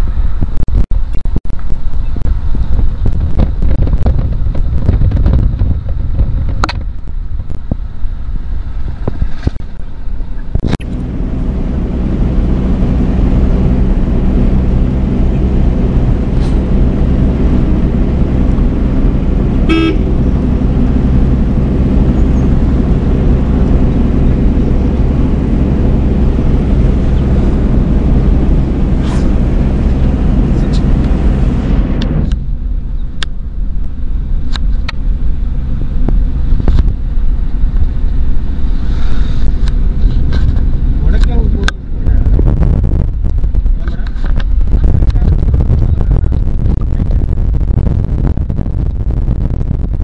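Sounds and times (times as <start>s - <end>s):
car engine and road noise: 0.0s - 50.0s
vehicle horn toot: 19.6s - 20.3s.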